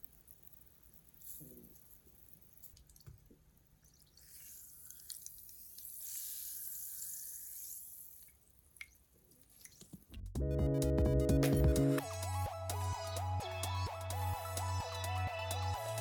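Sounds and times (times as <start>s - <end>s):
small drips: 0.4s - 10.3s.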